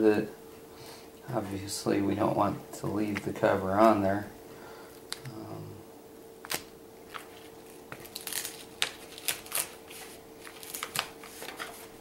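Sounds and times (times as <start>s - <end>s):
plastic film peeling and crinkling: 6.4s - 12.0s.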